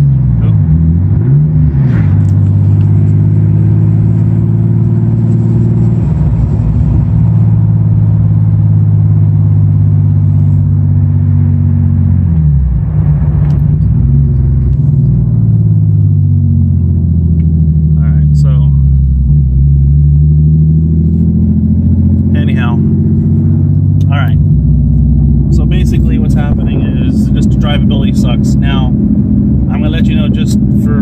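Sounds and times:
car engine running: 0:00.0 - 0:31.0.

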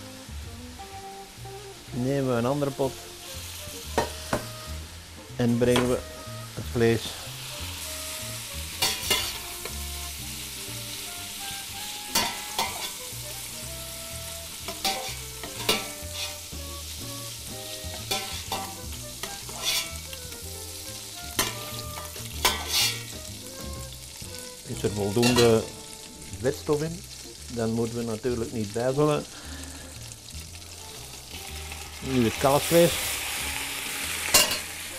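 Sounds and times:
pork sizzling in butter and oil: 0:00.0 - 0:34.9
metal skimmer scraping a pot: 0:19.5 - 0:19.9, 0:22.4 - 0:23.1.

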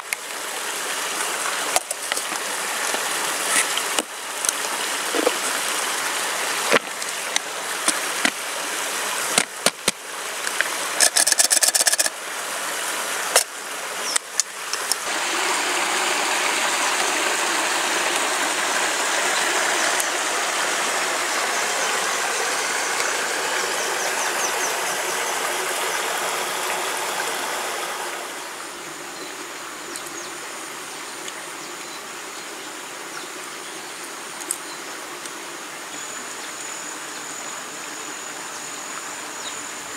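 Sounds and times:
mountain stream rushing: 0:00.0 - 0:39.9.

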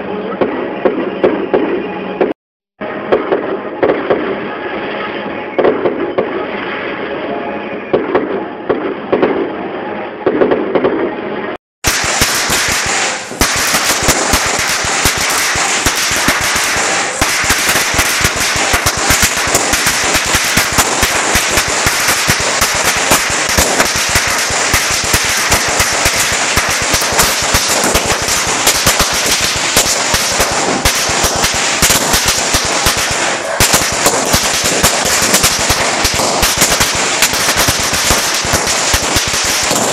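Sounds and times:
fireworks bursting: 0:03.1 - 0:04.6, 0:11.8 - 0:39.9
firecrackers crackling: 0:11.8 - 0:39.9.

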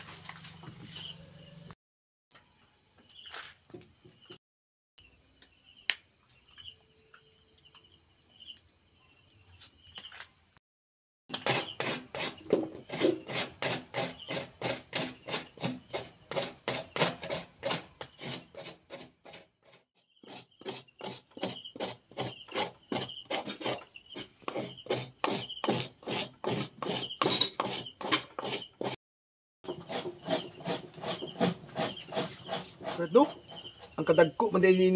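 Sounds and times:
crickets chirping: 0:00.0 - 0:04.4, 0:05.0 - 0:10.6, 0:20.1 - 0:28.9, 0:29.7 - 0:34.9
coconut scraped on grater: 0:11.3 - 0:29.0, 0:29.7 - 0:34.1.

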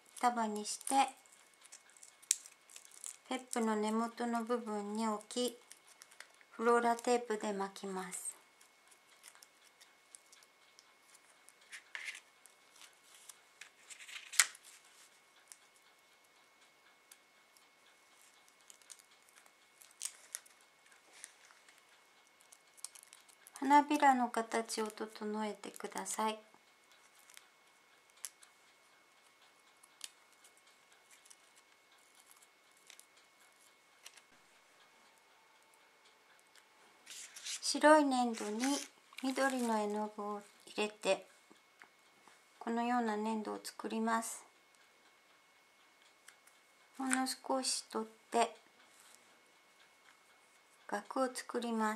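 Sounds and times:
tape rustling and clicking: 0:00.0 - 0:03.9, 0:05.1 - 0:07.1, 0:08.5 - 0:23.7, 0:26.9 - 0:34.4, 0:36.3 - 0:40.0.

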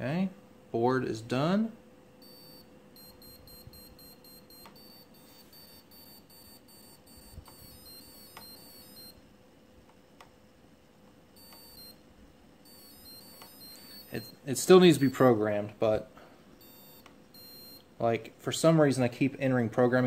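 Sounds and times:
beeps stepping in pitch: 0:02.2 - 0:09.2, 0:11.4 - 0:12.0, 0:12.6 - 0:15.3, 0:16.6 - 0:17.9
short high motor beeps: 0:02.2 - 0:09.2, 0:11.4 - 0:12.0, 0:12.6 - 0:15.4, 0:16.6 - 0:17.9.

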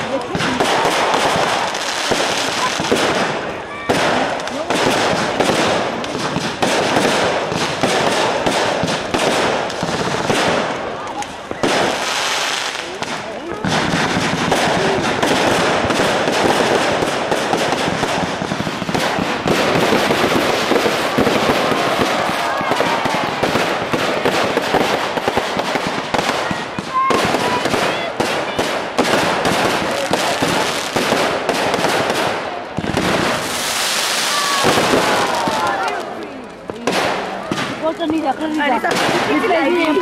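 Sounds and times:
fireworks crackling and popping: 0:00.0 - 0:40.0
firework whistles: 0:33.2 - 0:35.6.

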